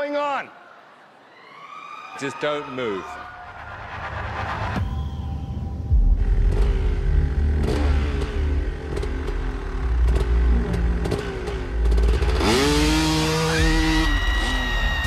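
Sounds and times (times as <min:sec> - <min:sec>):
motorcycle engine revving: 0:05.9 - 0:15.0.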